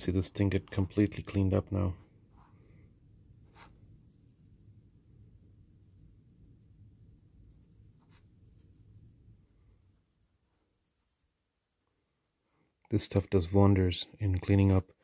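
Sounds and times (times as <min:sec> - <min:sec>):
cotton swab rubbing metal: 0:03.3 - 0:12.4.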